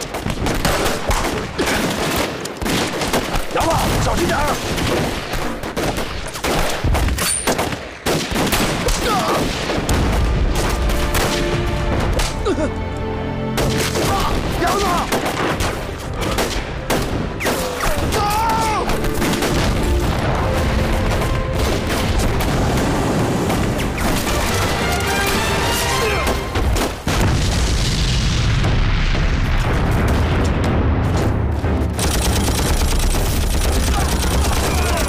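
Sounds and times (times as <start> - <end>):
men shouting: 17.6 - 18.9, 33.9 - 35.0
rifle gunfire: 32.0 - 35.0.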